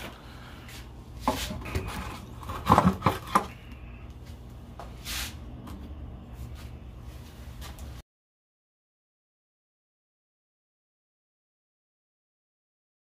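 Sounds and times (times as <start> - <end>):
hard objects knocking and clattering: 1.3 - 3.6.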